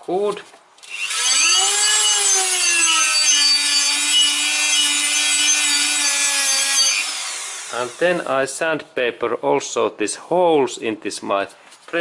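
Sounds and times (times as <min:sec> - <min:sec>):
rotary tool grinding metal: 0:00.8 - 0:08.3.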